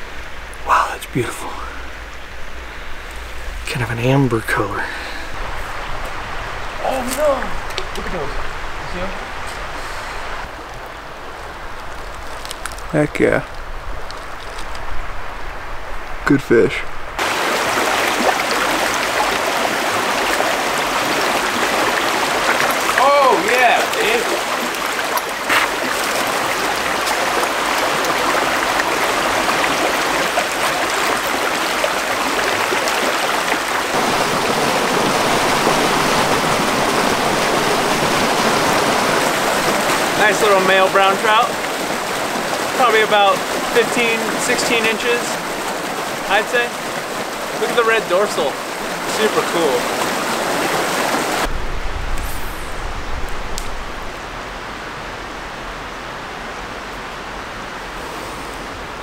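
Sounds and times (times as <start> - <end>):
water rushing over stones: 0.0 - 1.8, 3.1 - 13.4, 17.2 - 54.3
low rumble: 51.5 - 54.8.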